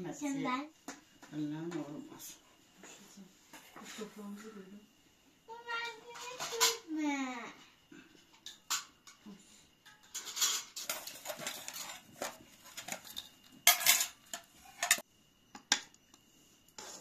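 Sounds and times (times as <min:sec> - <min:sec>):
spoons scraping and clinking on metal: 0:06.2 - 0:06.8, 0:09.8 - 0:15.0.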